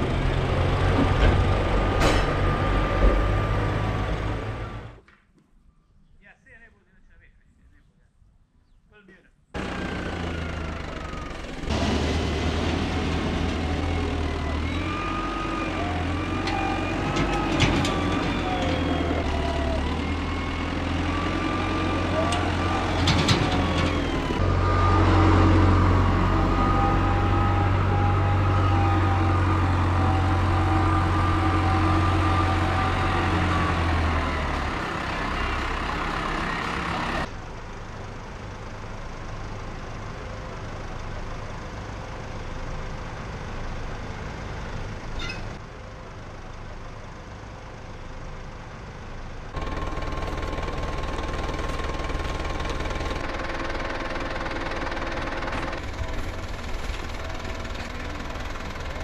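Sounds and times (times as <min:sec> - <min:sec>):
tractor diesel engine working hard: 0:00.0 - 0:05.0, 0:09.6 - 0:59.0
distant engine running: 0:49.5 - 0:59.0.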